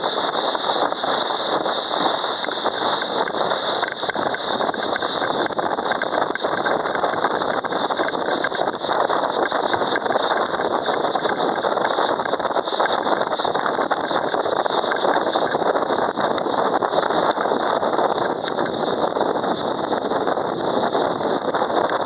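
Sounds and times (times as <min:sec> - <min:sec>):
spray off boat hull: 0:00.0 - 0:17.0
wind on microphone: 0:00.0 - 0:22.0.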